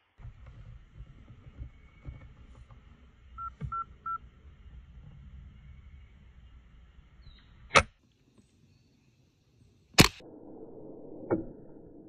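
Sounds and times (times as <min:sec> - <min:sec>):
rifle shot: 0:10.0 - 0:10.6.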